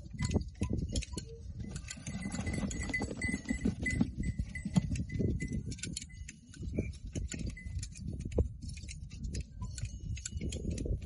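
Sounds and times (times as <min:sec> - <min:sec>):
goats scuffling: 0:01.7 - 0:05.1.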